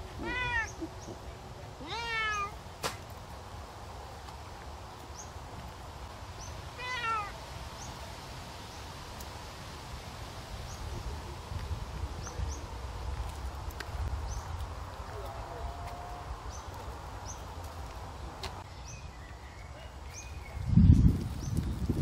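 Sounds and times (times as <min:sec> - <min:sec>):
cat meowing: 0:00.2 - 0:00.7, 0:01.8 - 0:02.6, 0:06.8 - 0:07.4.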